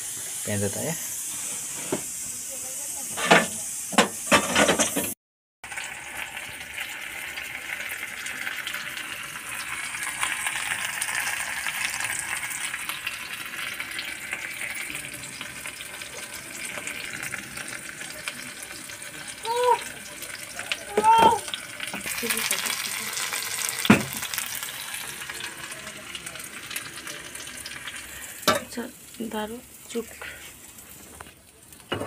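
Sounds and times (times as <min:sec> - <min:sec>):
oil sizzling in a pan: 0:00.0 - 0:32.0.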